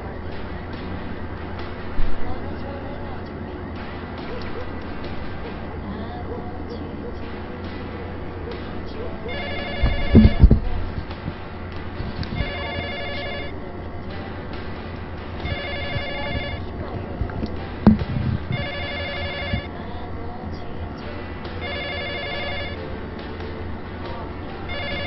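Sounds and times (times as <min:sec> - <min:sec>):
low steady hum: 0:00.0 - 0:25.0
telephone ringing with electronic trill: 0:09.3 - 0:10.6, 0:12.4 - 0:13.6, 0:15.4 - 0:16.7, 0:17.9 - 0:19.7, 0:21.6 - 0:22.8, 0:24.7 - 0:25.0
sharp knock: 0:09.8 - 0:11.4, 0:17.9 - 0:18.7.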